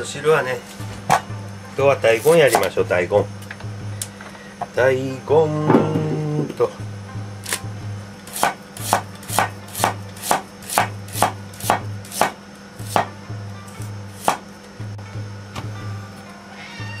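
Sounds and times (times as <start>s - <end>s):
knife chopping on cutting board: 8.3s - 13.2s, 14.2s - 14.5s.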